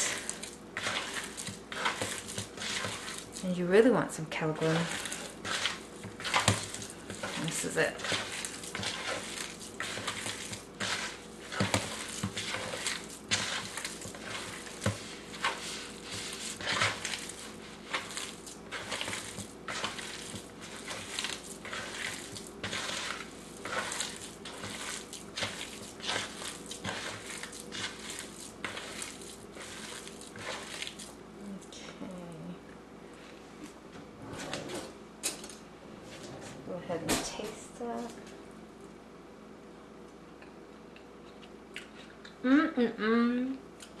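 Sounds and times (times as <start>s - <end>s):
hand squishing soft food in bowl: 0.0s - 3.5s, 4.4s - 31.8s.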